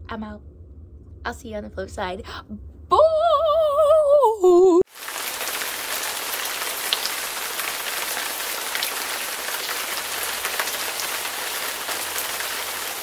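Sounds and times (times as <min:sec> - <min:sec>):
steady rain-like hiss: 0:04.9 - 0:13.0.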